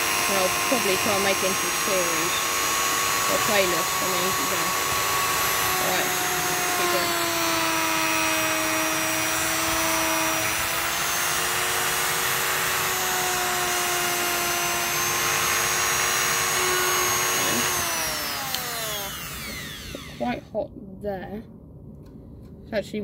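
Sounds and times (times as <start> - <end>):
wire brush scrubbing metal: 0.0 - 12.7
rotary tool whining: 0.0 - 20.4.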